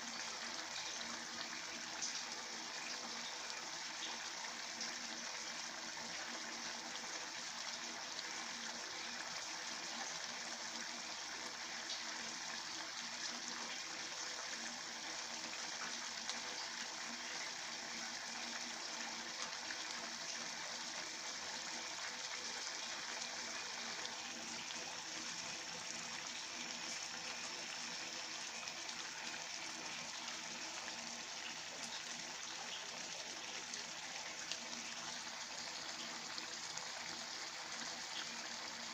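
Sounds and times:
pot boiling with bubbling: 0.0 - 38.9.

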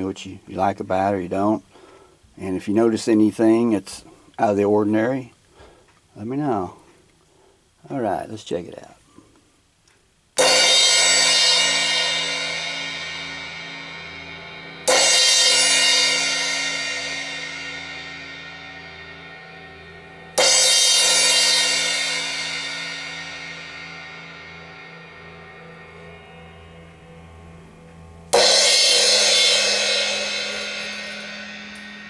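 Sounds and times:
crash cymbal struck with drumstick: 10.4 - 27.1, 28.2 - 32.0.

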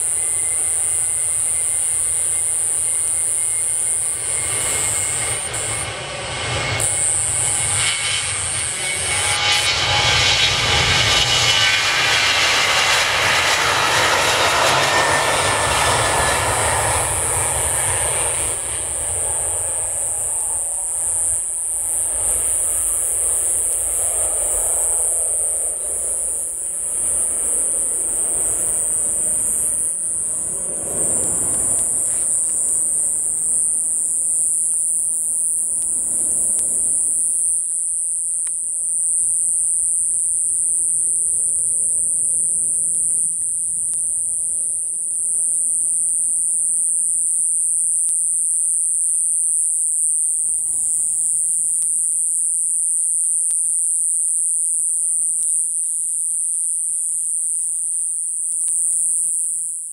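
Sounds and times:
jet engine rumble: 0.0 - 37.3
high-pitched insect chorus: 0.0 - 59.9.

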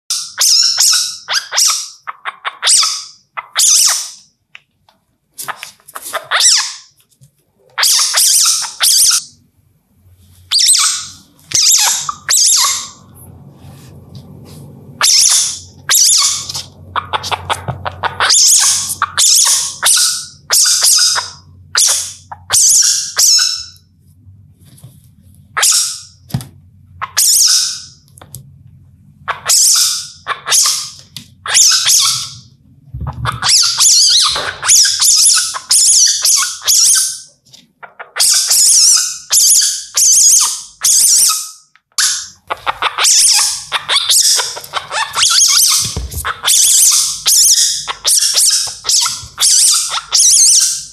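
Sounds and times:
civet screeching calls: 7.8 - 9.4, 10.5 - 13.0, 15.0 - 23.8, 29.3 - 32.5, 33.2 - 37.3, 37.9 - 50.9
low steady hum: 9.2 - 27.2, 27.8 - 30.4.

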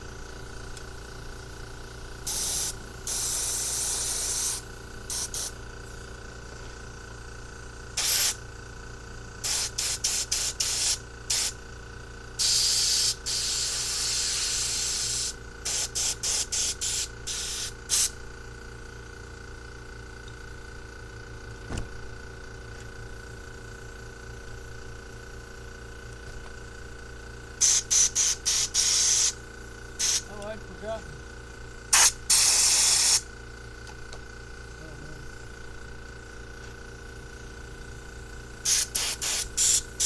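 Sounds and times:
pressurized spray hissing: 2.3 - 5.6, 8.0 - 8.4, 9.4 - 11.5, 12.4 - 18.1, 27.6 - 29.4, 30.0 - 30.3, 31.9 - 33.2, 38.6 - 40.0.

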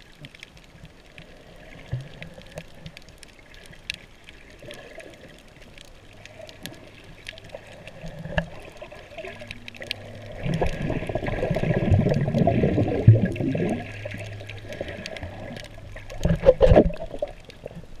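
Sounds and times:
water splashing: 0.0 - 18.0
water gurgling and bubbling: 4.4 - 18.0.

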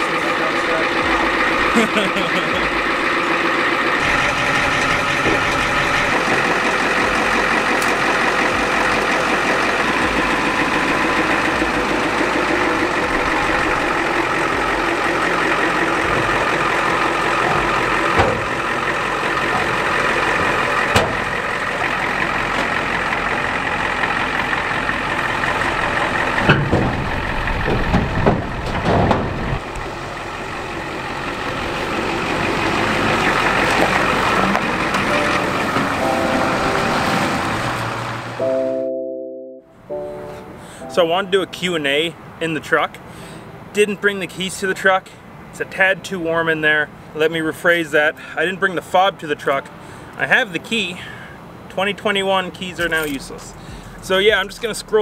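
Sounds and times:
diesel engine idling: 0.0 - 38.6, 39.7 - 55.0
low thumps: 11.2 - 21.9, 25.6 - 30.0.

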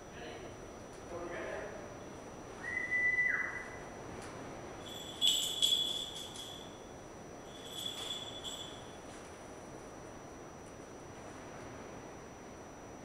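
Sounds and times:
small bells jingling: 4.8 - 9.0.

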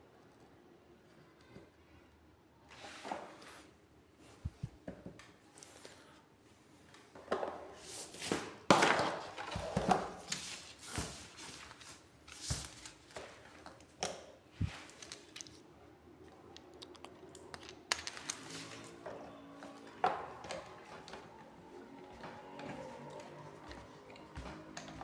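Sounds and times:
plastic parts clicking and rustling: 12.4 - 15.7, 16.3 - 19.0.

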